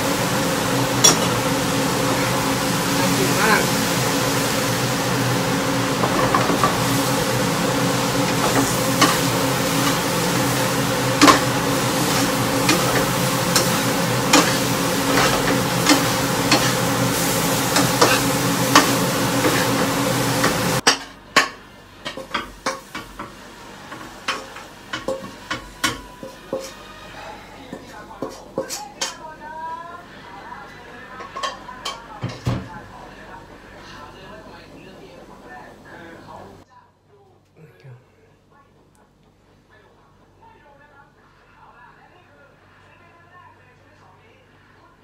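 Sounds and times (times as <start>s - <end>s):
food sizzling: 0.0s - 36.6s
spatula scraping frying pan: 0.8s - 29.2s.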